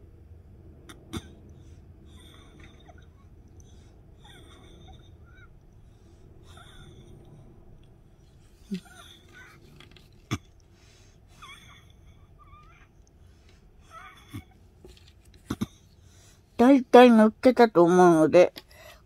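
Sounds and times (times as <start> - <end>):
low hum: 0.0 - 17.1
soft breaths: 1.2 - 16.6, 18.6 - 19.0.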